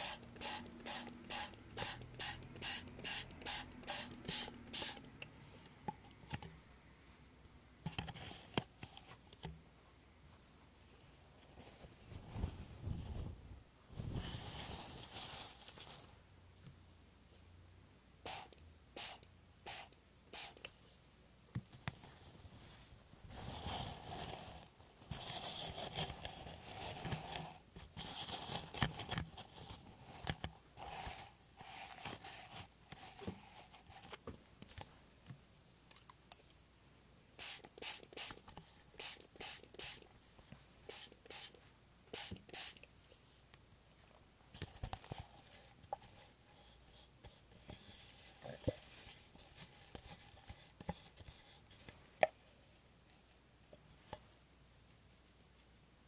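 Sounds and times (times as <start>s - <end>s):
spray bottle hisses: 0.0s - 5.1s, 18.3s - 20.6s, 37.4s - 38.4s, 39.0s - 40.0s, 40.9s - 42.8s
tissue paper rustling: 11.4s - 16.2s.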